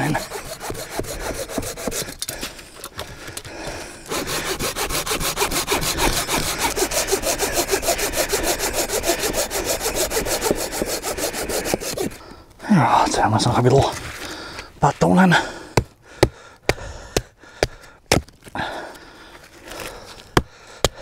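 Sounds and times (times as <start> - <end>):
hand saw cutting wood: 0.0 - 2.5, 4.1 - 12.2.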